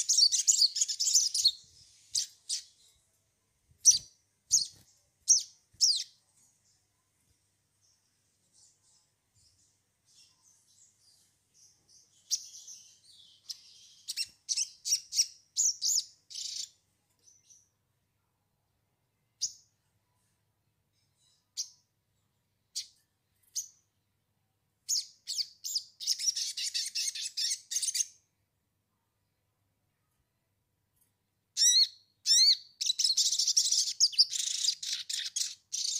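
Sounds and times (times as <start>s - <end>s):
bird chirps and call phrases: 0.0s - 3.0s, 3.8s - 6.8s, 8.5s - 17.8s, 24.9s - 28.3s, 31.6s - 35.9s.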